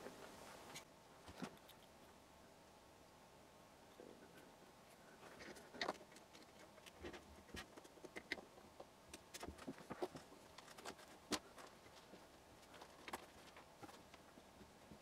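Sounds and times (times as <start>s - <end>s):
parts clicking and tapping: 5.4s - 14.2s.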